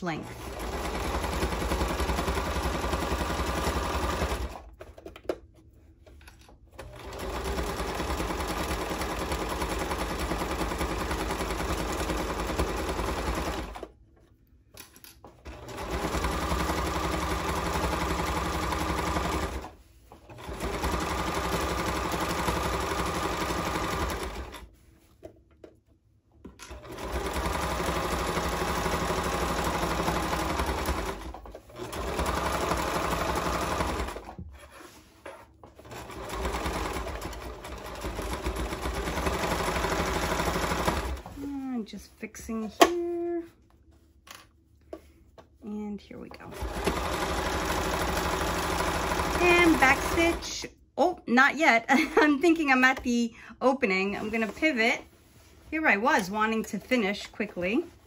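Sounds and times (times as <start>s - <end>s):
sewing machine stitching: 0.2s - 5.0s, 6.7s - 13.9s, 15.3s - 24.7s, 26.6s - 34.4s, 35.7s - 41.4s, 46.5s - 50.6s.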